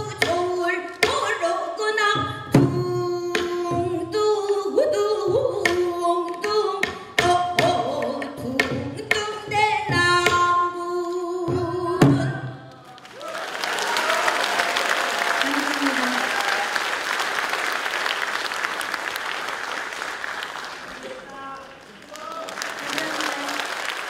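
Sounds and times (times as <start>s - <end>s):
woman singing: 0.0s - 12.7s
applause: 12.7s - 24.0s.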